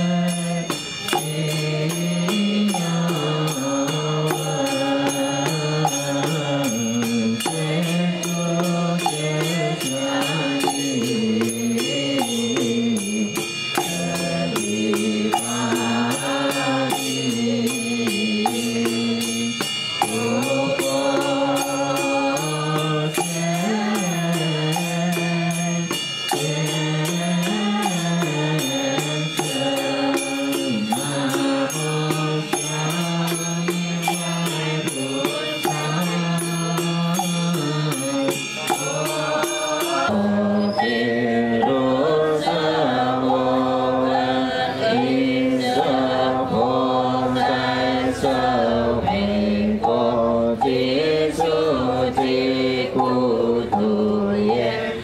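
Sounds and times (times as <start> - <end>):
voices chanting: 0.0 - 55.0.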